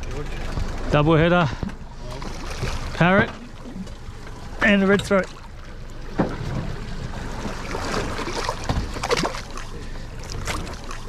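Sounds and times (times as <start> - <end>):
fish thrashing water splashing: 2.1 - 4.3, 5.2 - 11.0.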